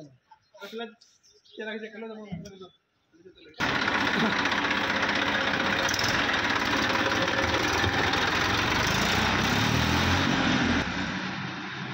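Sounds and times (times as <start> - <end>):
tractor diesel engine running: 3.6 - 11.9.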